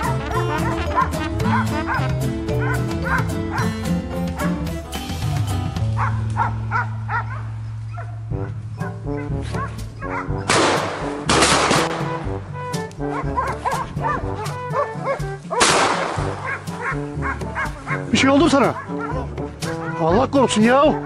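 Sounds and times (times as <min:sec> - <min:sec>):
hounds barking and yelping: 0:00.0 - 0:10.6, 0:12.8 - 0:21.0
background music: 0:00.0 - 0:21.0
loud shotgun blasts: 0:10.5 - 0:12.3, 0:15.6 - 0:16.5.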